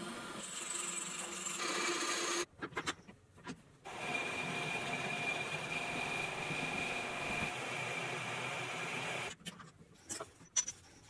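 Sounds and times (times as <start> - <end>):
metal lathe whining: 3.9 - 9.3.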